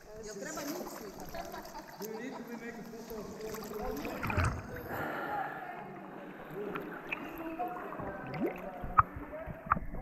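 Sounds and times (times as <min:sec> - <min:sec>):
water lapping and gurgling: 0:02.9 - 0:10.0.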